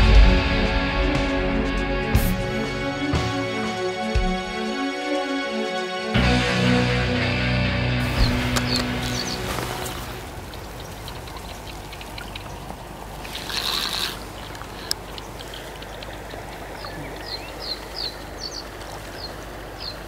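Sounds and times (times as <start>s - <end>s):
river water rushing: 8.0s - 20.0s.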